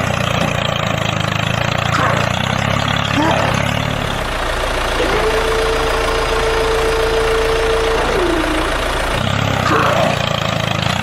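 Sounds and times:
small engine running: 0.0s - 11.0s
steady tone: 3.2s - 10.2s.

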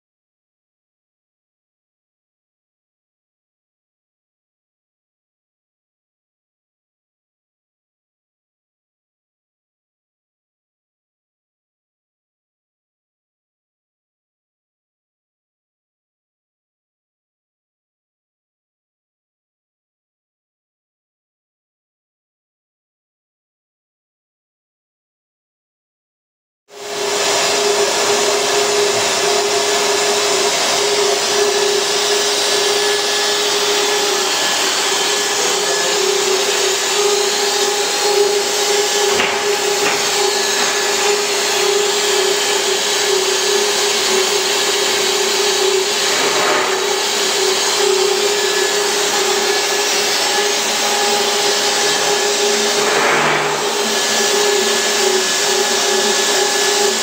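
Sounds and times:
machine whir and hiss: 26.8s - 57.0s.

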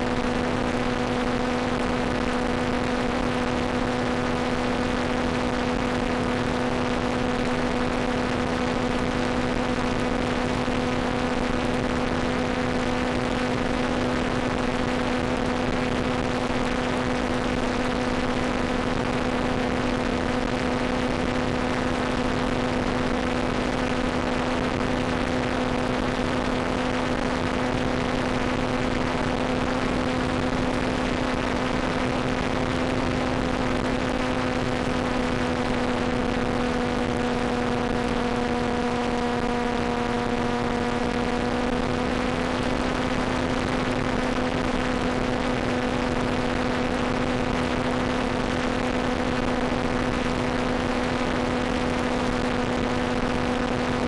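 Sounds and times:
low hum tone: 0.0s - 54.0s.

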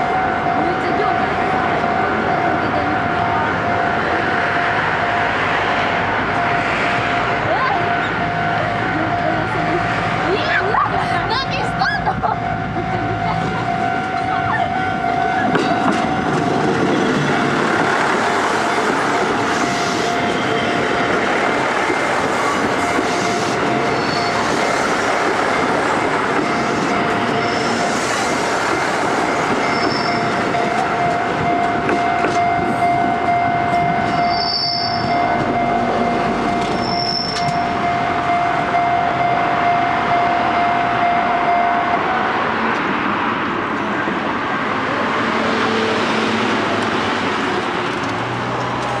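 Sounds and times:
steady high tone: 0.0s - 42.8s
railcar wheels on rails: 0.0s - 49.0s.

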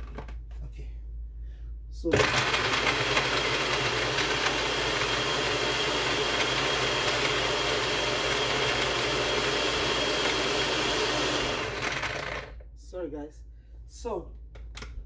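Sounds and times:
blender motor whining: 2.1s - 12.6s.

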